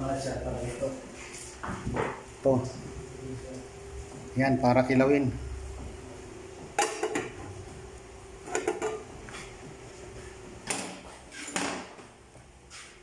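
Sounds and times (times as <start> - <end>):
faint steady hum: 0.0 - 13.0
cooking pots and lids clanking: 6.8 - 7.4, 8.5 - 9.1.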